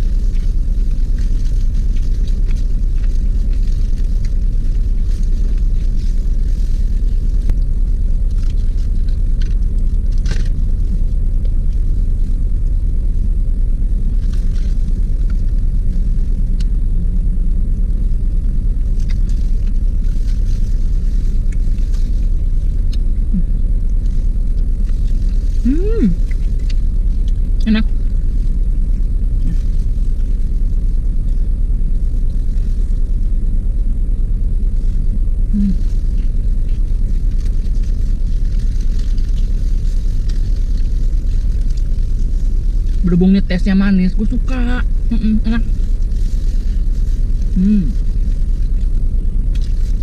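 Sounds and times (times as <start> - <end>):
plastic glove and wrapping crinkling: 0.0 - 12.6, 18.7 - 31.3, 34.6 - 50.0
car engine idling: 0.0 - 50.0.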